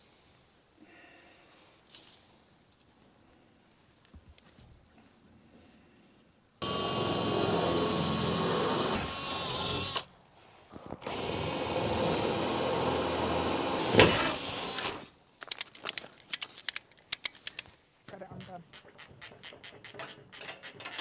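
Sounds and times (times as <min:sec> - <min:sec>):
power drill running: 0:06.6 - 0:10.1, 0:11.0 - 0:15.1.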